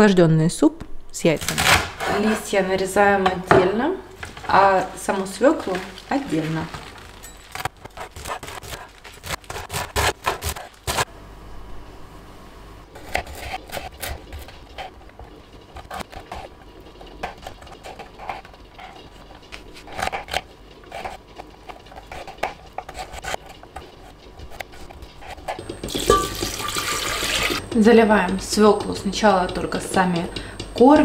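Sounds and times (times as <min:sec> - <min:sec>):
knife chopping on wooden board: 0:07.9 - 0:11.0
water pouring into a pot: 0:25.9 - 0:27.6.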